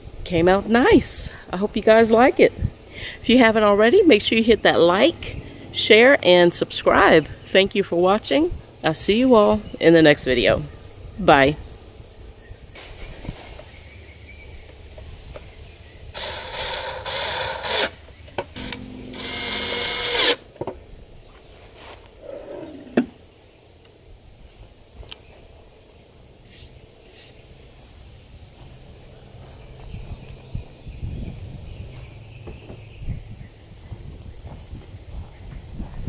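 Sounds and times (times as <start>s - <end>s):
steady hum: 16.2s - 20.5s.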